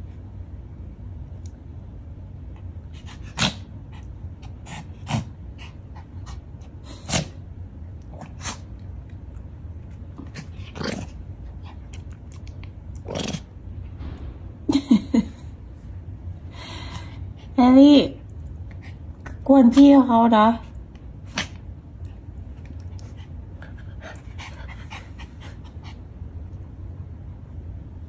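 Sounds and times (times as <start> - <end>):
low hum: 7.4 - 28.0.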